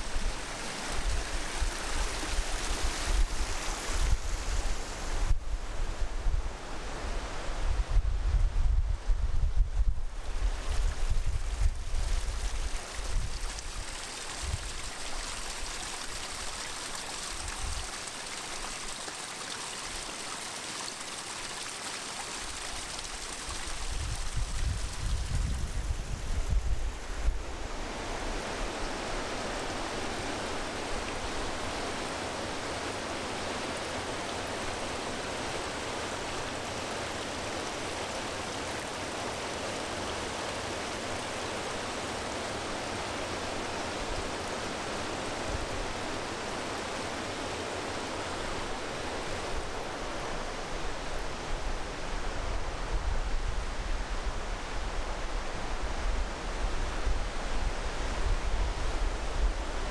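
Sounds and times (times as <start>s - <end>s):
mountain stream rushing: 0.0s - 8.0s, 10.1s - 59.9s
wind rumbling on microphone: 0.0s - 15.2s, 23.6s - 32.6s, 47.2s - 59.9s.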